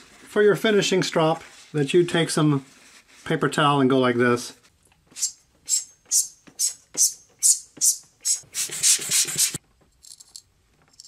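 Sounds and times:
hand rubbing wooden block: 5.0 - 9.6.

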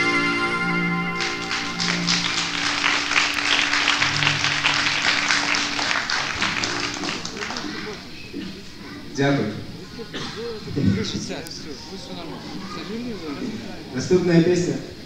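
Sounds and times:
held note: 0.0 - 7.2
rock band chord ringing: 0.0 - 7.2
audience applause: 1.1 - 8.8.

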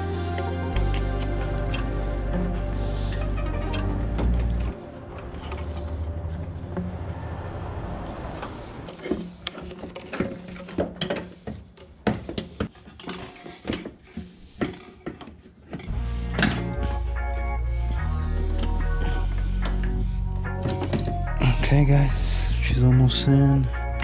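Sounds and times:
metal and plastic parts clinking: 8.9 - 16.8, 19.6 - 21.3.

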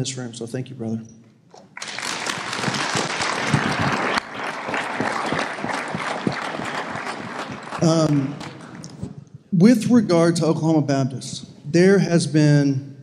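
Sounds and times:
crowd applauding: 1.8 - 9.2.

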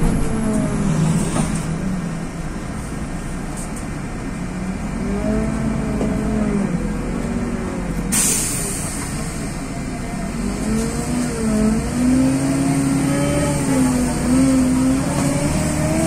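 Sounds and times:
bus engine running: 0.0 - 16.0
compressed air hissing: 8.1 - 9.5.

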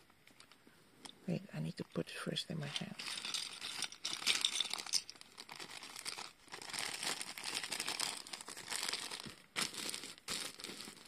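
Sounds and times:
plastic bag crinkling: 2.8 - 11.0.

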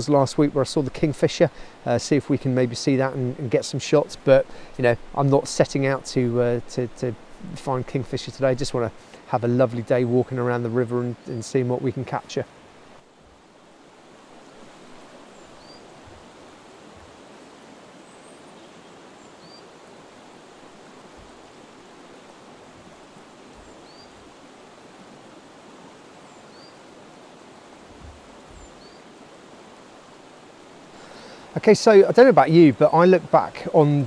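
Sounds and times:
river rushing over stones: 0.0 - 34.0
bird high rising call: 15.3 - 16.0, 18.0 - 19.8, 23.6 - 24.2, 26.3 - 26.8.

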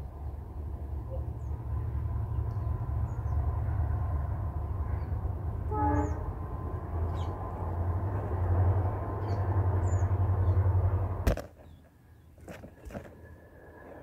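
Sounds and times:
heavy vehicle rumbling past: 0.0 - 11.3
vehicle horn: 5.7 - 6.4.

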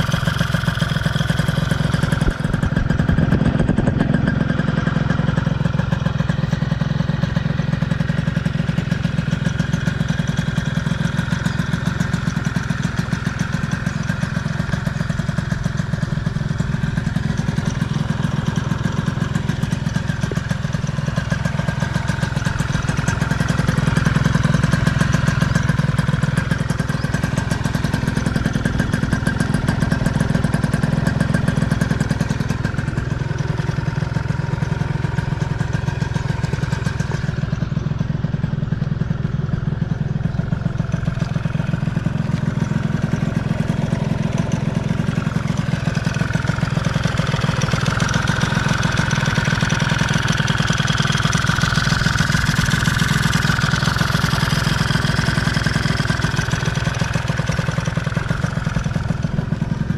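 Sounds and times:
scooter engine idling: 0.0 - 59.9.

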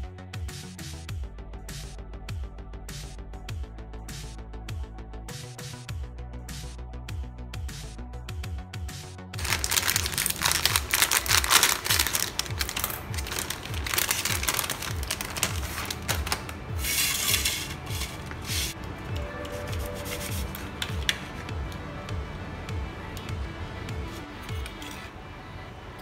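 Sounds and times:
background music with beat: 0.0 - 25.2
plastic bread bag crinkling: 9.4 - 18.8.

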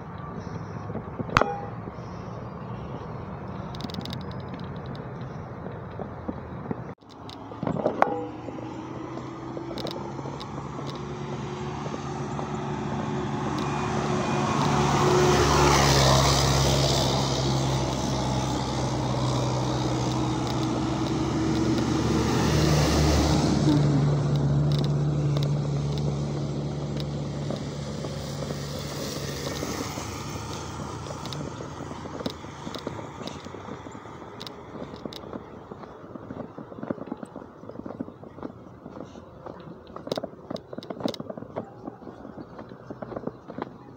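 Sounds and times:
passing vehicle engines: 0.0 - 43.9
light ticks: 24.2 - 35.9.

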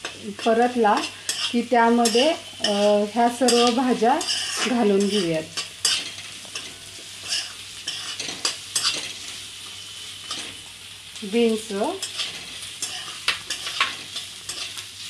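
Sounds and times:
steel spoon scraping and clinking pan: 0.0 - 9.3, 12.0 - 14.8
onions sizzling in hot oil: 0.0 - 15.0.

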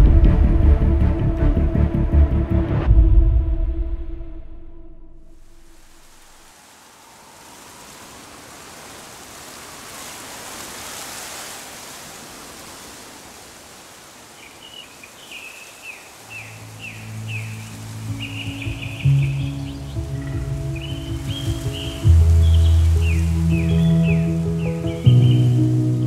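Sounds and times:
even outdoor hiss: 5.3 - 26.0
bird chirping falling notes: 14.4 - 26.0
low sustained music notes: 16.4 - 26.0.

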